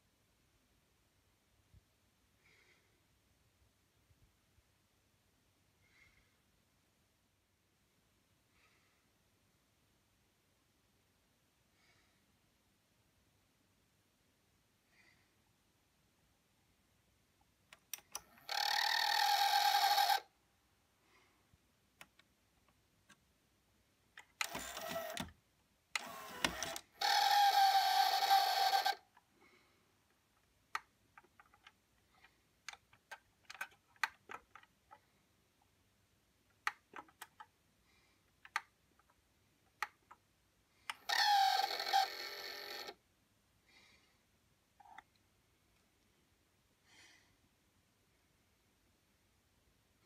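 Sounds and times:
cassette deck motor whirring: 0:24.4 - 0:25.3, 0:26.0 - 0:28.9.

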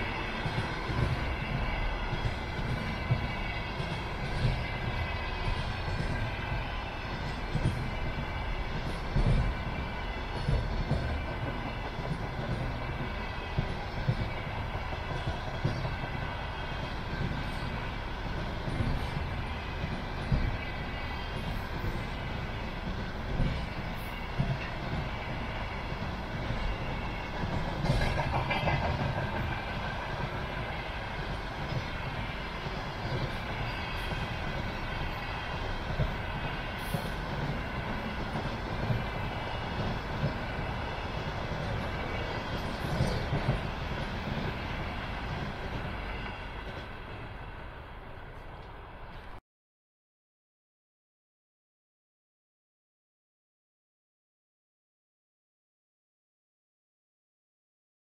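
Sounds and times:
train rail rumble: 0:00.0 - 0:49.4.

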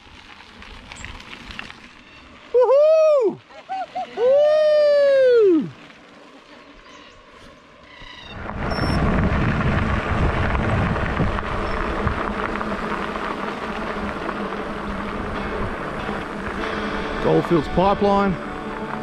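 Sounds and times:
bicycle tyres on gravel: 0:00.0 - 0:19.0
wind buffeting microphone: 0:08.2 - 0:18.2.

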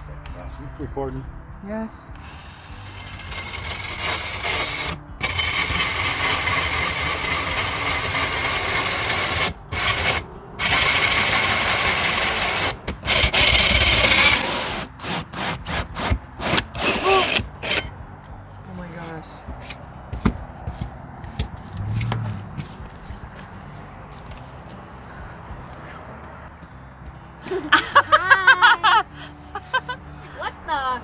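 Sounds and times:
drill hole saw grinding: 0:02.4 - 0:17.9.

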